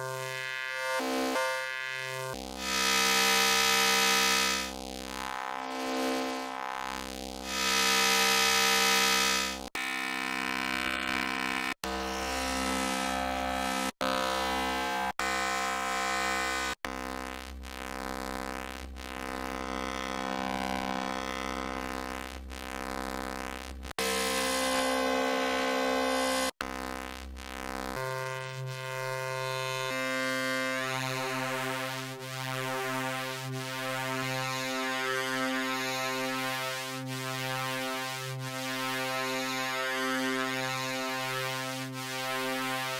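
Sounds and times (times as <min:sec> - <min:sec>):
buzzy synth drone: 0:00.0 - 0:10.1, 0:24.0 - 0:42.9.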